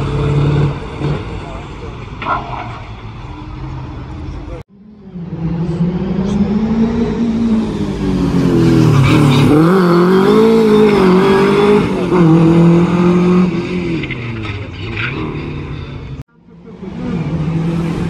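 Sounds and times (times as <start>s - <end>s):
rally car engine revving: 4.2s - 18.0s.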